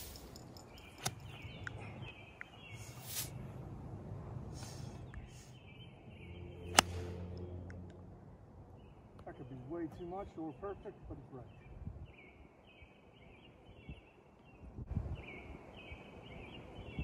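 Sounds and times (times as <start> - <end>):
birds chirping: 0.0 - 3.6, 4.6 - 17.0
golf club striking ball: 1.0 - 1.2, 6.7 - 7.8.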